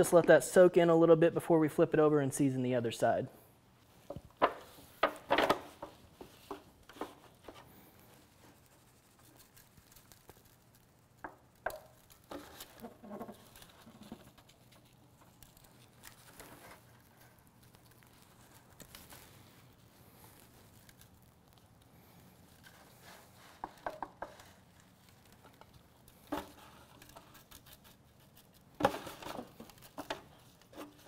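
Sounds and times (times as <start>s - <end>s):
foil crinkling: 4.7s - 31.0s
dry rub pattering onto meat: 5.9s - 28.9s.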